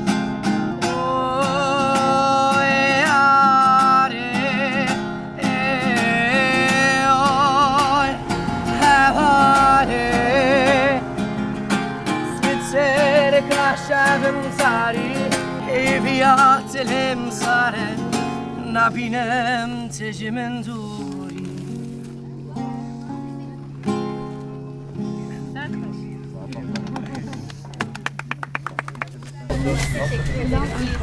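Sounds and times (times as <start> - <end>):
acoustic guitar strumming: 0.0 - 26.9
man singing with vibrato: 0.7 - 21.8.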